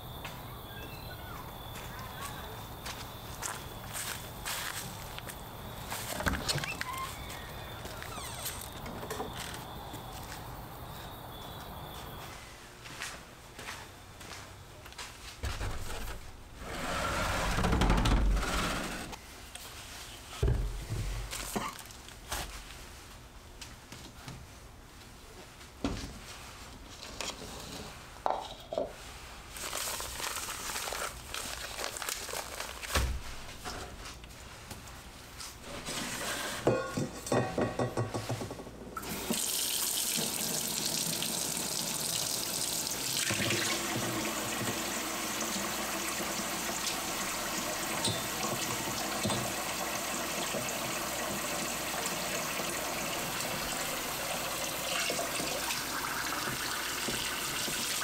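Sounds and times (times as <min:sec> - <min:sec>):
faucet running into steel bowl: 0:39.0 - 0:58.0.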